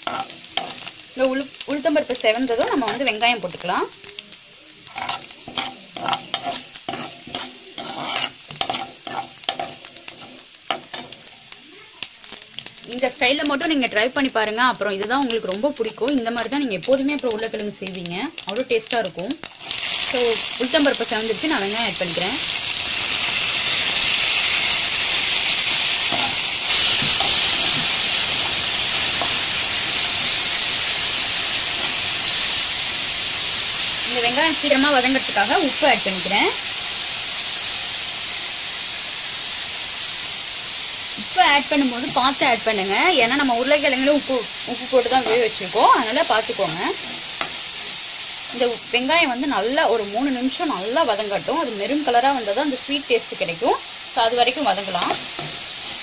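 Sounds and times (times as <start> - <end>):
frying in hot oil sizzle: 0.0 - 56.0
metal ladle scraping and clinking: 4.9 - 11.2.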